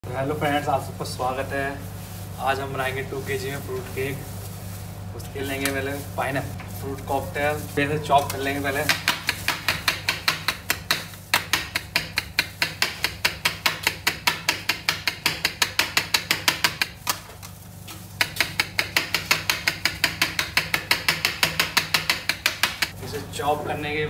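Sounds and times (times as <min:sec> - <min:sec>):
knife chopping on stone countertop: 0:08.4 - 0:16.9, 0:18.2 - 0:22.9.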